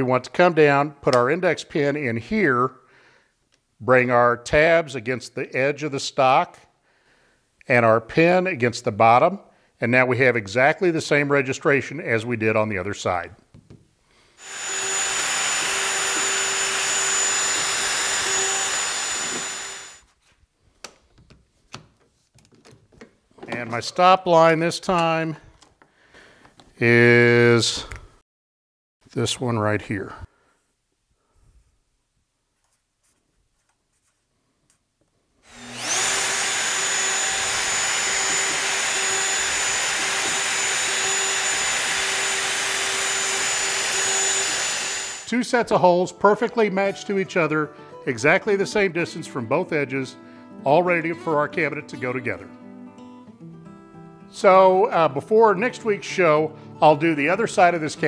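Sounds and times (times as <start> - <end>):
power tool whine: 14.4 - 20.0, 35.5 - 45.3.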